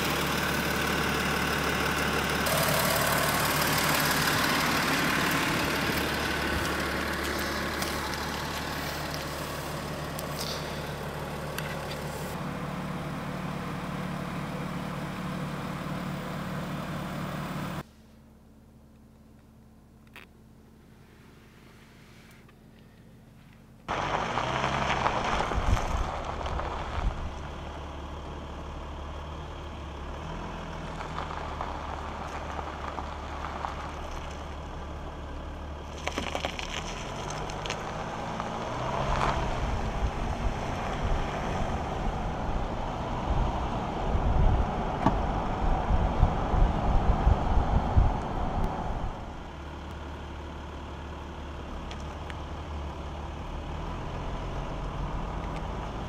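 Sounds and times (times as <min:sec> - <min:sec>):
gravel crackling under tyre: 0:00.0 - 0:56.0
tyre rolling hiss on tarmac: 0:02.4 - 0:12.4, 0:23.9 - 0:27.5
gusty low rumbling: 0:25.1 - 0:27.6, 0:39.2 - 0:49.5.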